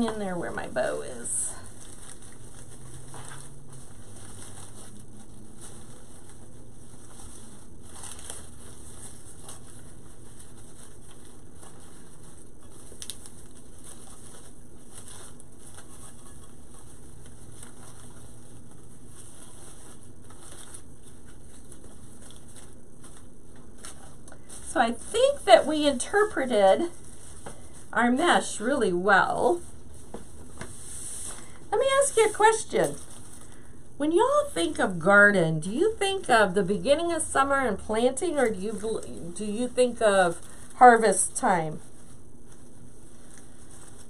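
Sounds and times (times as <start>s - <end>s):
mesh and ribbon crinkling: 0.0s - 44.0s
steady background hiss: 0.0s - 44.0s.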